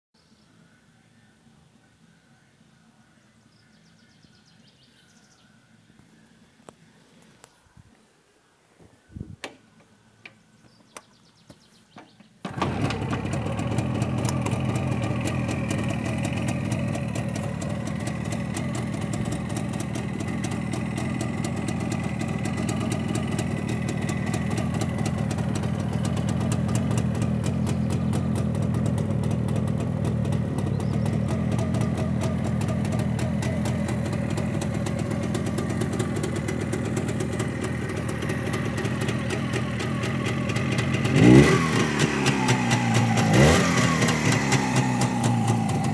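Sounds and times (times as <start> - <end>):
motorcycle engine starting knocks: 12.0 - 20.8
motorcycle engine idling: 12.5 - 45.9.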